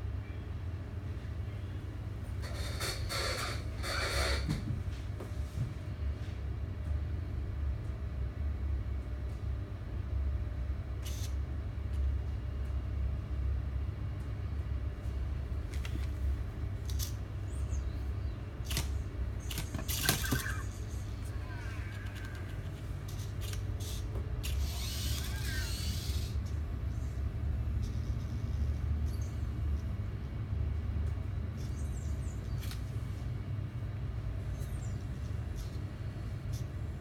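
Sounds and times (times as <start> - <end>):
steady low hum: 0.0 - 37.0
toy robot chirping electronic glides: 19.9 - 20.9, 24.6 - 26.3.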